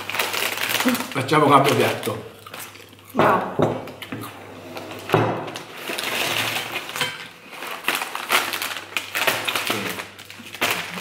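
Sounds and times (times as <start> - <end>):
chip bag crinkling: 0.0 - 3.0, 5.5 - 11.0.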